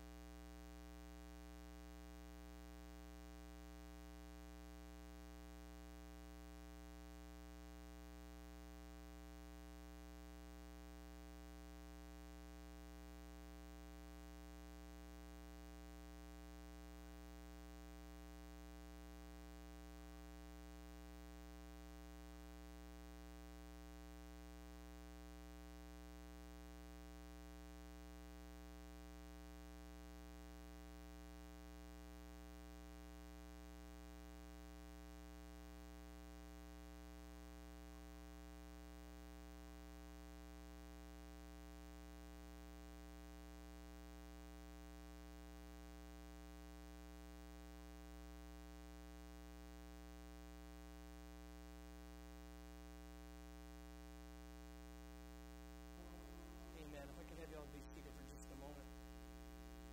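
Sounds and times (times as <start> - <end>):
electrical mains hum: 55.0 - 59.9.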